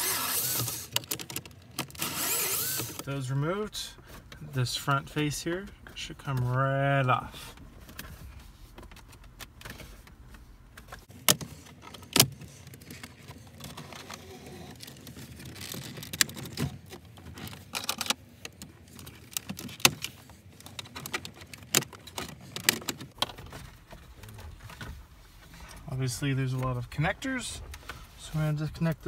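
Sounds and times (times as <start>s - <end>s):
plastic trim clicking and rattling: 0.5s - 2.1s, 14.8s - 23.6s.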